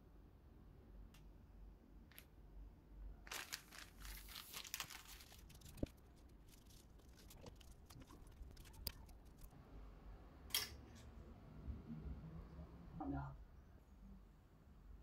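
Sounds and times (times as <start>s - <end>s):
plastic packaging crinkling: 3.2s - 9.5s.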